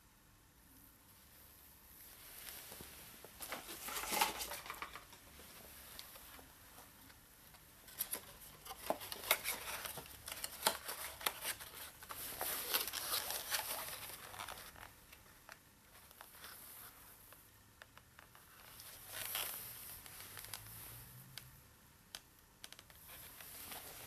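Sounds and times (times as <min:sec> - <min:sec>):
cardboard box rustling: 0:03.4 - 0:05.2, 0:07.9 - 0:14.8.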